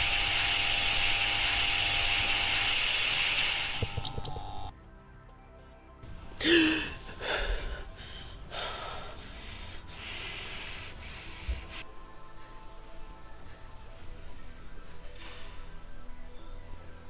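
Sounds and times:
heavy breathing: 6.4 - 11.9.

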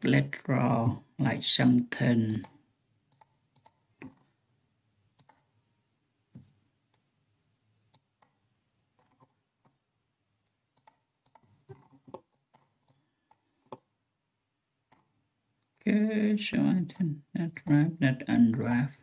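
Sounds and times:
computer mouse clicks: 2.3 - 4.3, 5.2 - 5.5, 10.8 - 13.9, 14.9 - 15.1.

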